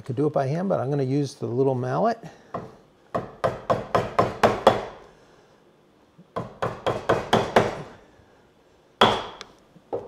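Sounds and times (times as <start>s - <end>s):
mallet striking chisel: 6.4s - 7.8s, 9.0s - 9.4s.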